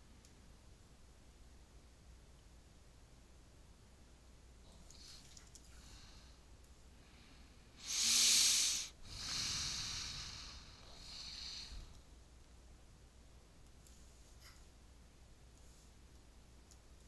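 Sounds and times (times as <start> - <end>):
person breathing close to microphone: 4.7 - 12.0.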